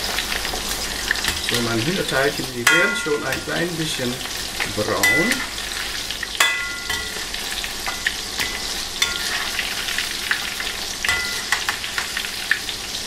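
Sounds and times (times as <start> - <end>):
chicken deep-frying sizzle: 0.0 - 13.0
wire skimmer scraping wok: 6.4 - 12.2.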